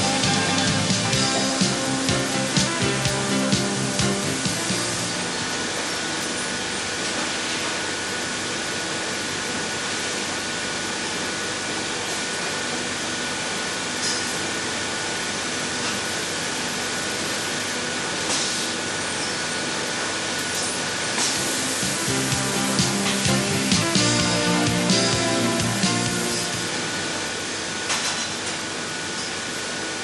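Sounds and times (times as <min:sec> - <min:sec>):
steady hiss: 0:00.0 - 0:05.4, 0:21.2 - 0:27.2.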